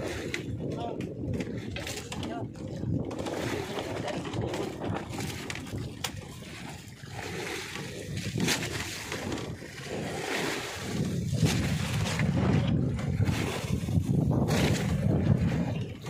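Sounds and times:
water sloshing and splashing: 0:00.0 - 0:16.0.

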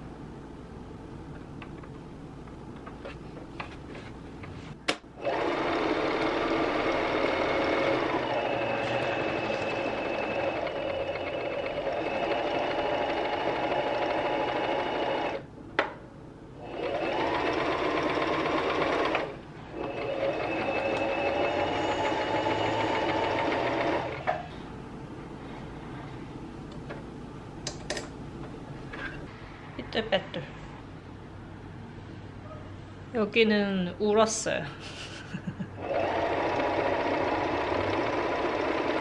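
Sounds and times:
electric sewing machine whirring: 0:05.2 - 0:15.5, 0:16.6 - 0:24.3, 0:35.8 - 0:39.0.

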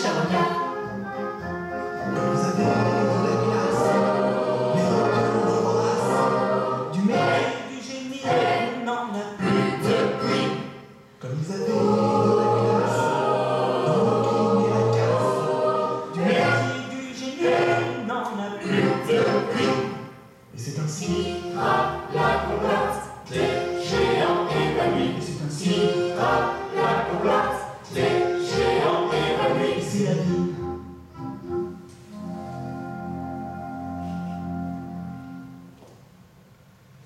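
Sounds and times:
mixed choir singing: 0:01.9 - 0:30.6.

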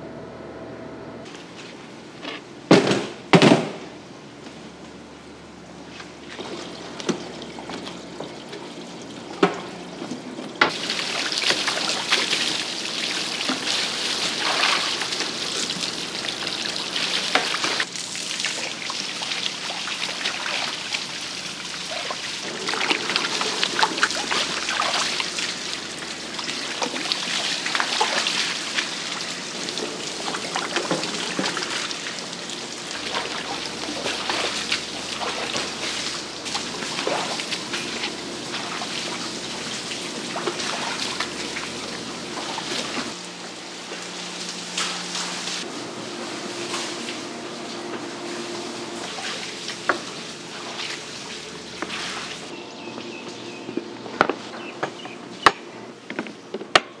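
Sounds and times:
hose spraying water: 0:10.7 - 0:52.5.

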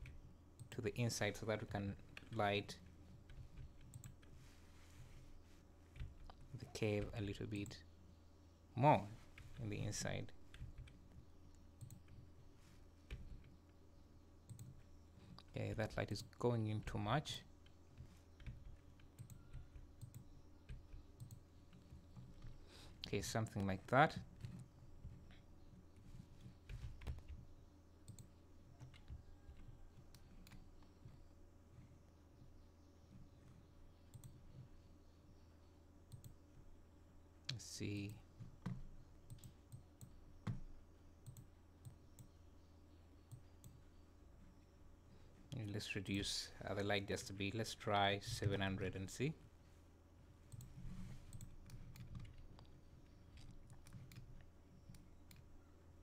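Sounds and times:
low electrical hum: 0:00.0 - 0:56.0
computer mouse clicks: 0:03.3 - 0:04.3, 0:33.4 - 0:34.4, 0:36.1 - 0:36.5, 0:38.6 - 0:40.6, 0:41.2 - 0:42.4, 0:50.5 - 0:55.5
computer mouse and keyboard clicks: 0:50.5 - 0:55.5.

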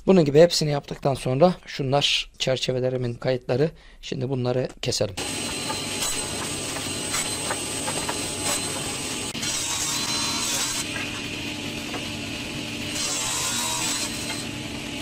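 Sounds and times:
panel saw humming: 0:05.2 - 0:15.0
saw blade cutting wood: 0:05.2 - 0:15.0
wood knocking against fence: 0:05.4 - 0:08.2.

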